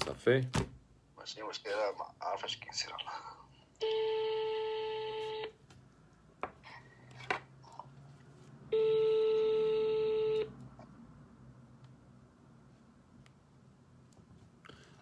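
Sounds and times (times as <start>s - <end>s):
telephone ringback tone: 3.8s - 5.5s, 8.7s - 10.5s.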